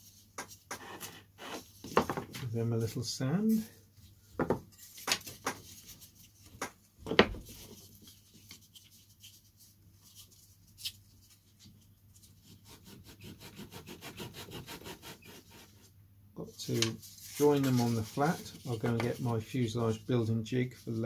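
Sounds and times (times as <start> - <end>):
sanding block rubbing wood: 12.7 - 15.8.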